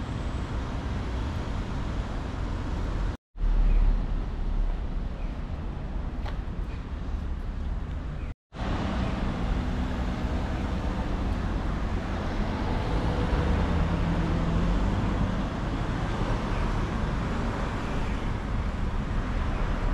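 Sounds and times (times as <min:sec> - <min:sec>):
cars driving past: 0:08.6 - 0:19.9.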